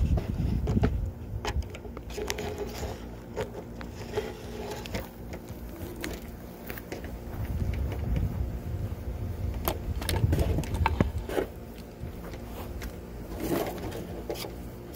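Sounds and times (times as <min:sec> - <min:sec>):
wind on microphone: 0:00.0 - 0:01.9, 0:07.2 - 0:12.2.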